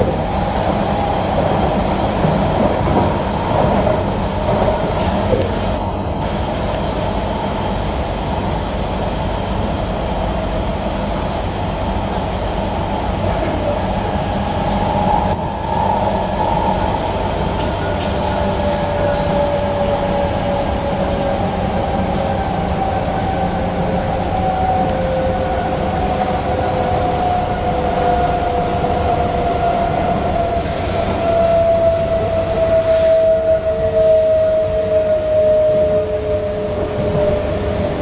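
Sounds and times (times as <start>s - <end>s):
train wheels rumbling on track: 0.0s - 38.0s.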